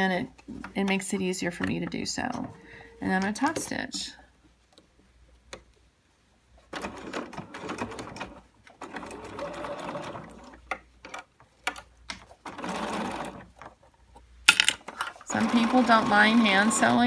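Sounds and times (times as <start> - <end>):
electric sewing machine running: 15.3 - 17.0.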